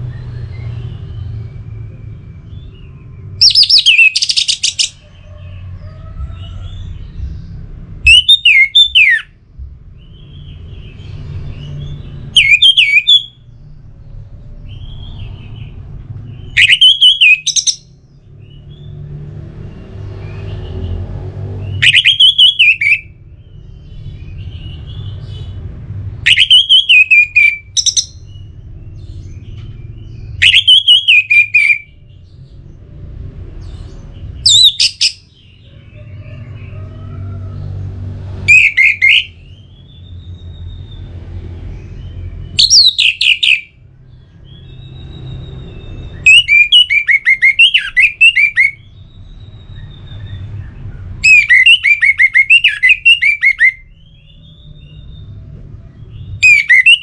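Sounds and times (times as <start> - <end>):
low steady rumble: 9.2 - 12.4.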